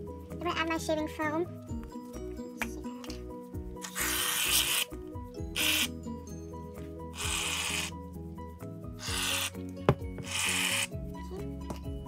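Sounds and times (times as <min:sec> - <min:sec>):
background music: 0:00.0 - 0:12.0
aerosol can hissing: 0:03.8 - 0:05.0, 0:05.6 - 0:05.9, 0:07.2 - 0:08.0, 0:09.0 - 0:09.6, 0:10.2 - 0:11.0.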